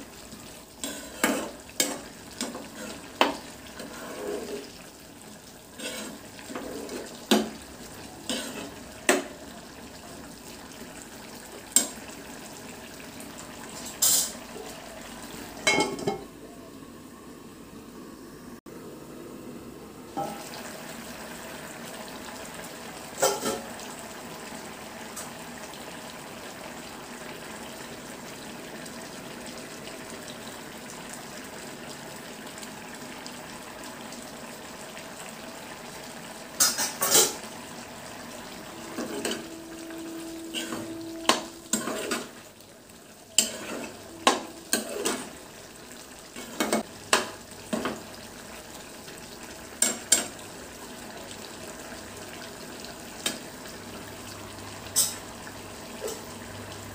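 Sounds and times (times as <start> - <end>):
curry sizzling and bubbling in pan: 0.0 - 16.4, 20.0 - 56.9
metal spoon scraping a pan: 0.8 - 4.7, 5.8 - 7.4, 8.2 - 8.8, 40.5 - 42.4, 43.4 - 45.3.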